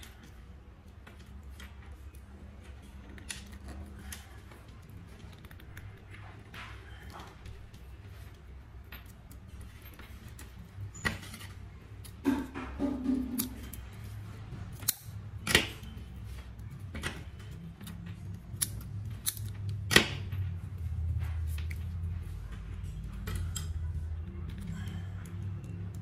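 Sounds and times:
scissors snipping metal strands: 13.2 - 13.9, 14.7 - 16.0, 17.8 - 20.2.

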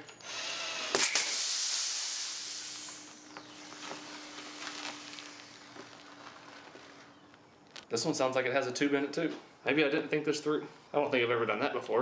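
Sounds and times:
cordless drill boring: 0.0 - 6.0
air hissing from tire: 0.8 - 6.0.

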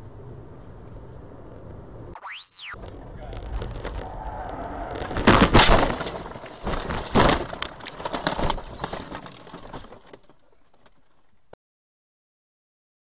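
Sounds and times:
car crash bang: 2.8 - 10.2
car knocking and rattling: 3.4 - 11.5.

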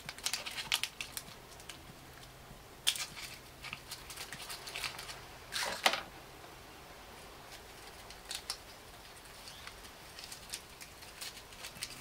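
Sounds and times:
paper crinkling: 0.0 - 1.8, 2.9 - 6.0, 7.5 - 12.0
scissors snipping paper: 9.4 - 12.0.

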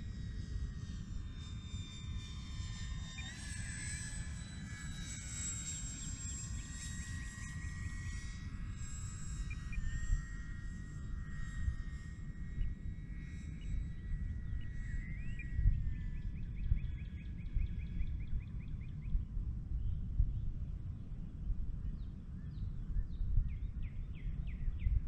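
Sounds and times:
model plane motor whining: 0.2 - 12.8
steady low rumble: 15.5 - 25.0.

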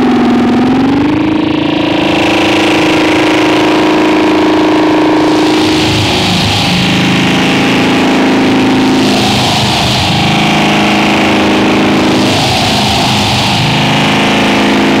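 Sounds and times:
distorted noise music: 0.0 - 15.0
low droning tones: 0.0 - 15.0
high hiss: 5.2 - 14.6.

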